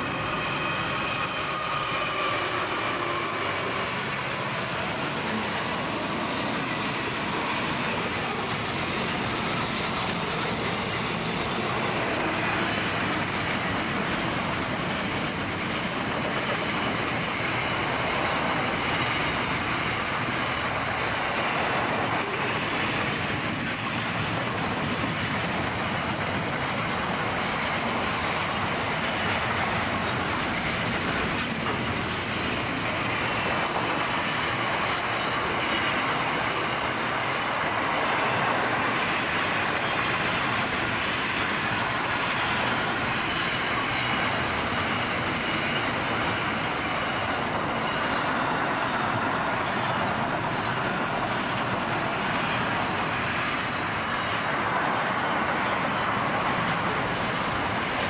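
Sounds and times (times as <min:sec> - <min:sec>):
freight train wheels on rails: 0:00.0 - 0:58.0.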